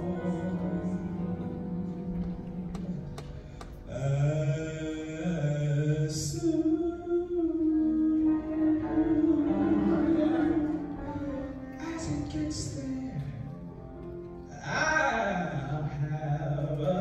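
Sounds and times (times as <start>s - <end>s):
choir singing low notes: 0.0s - 17.0s
man singing solo: 3.9s - 13.6s.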